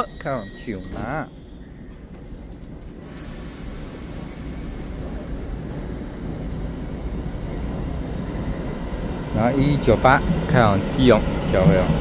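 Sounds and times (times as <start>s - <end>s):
train rumble: 0.0s - 12.0s
train air hiss: 3.0s - 7.1s.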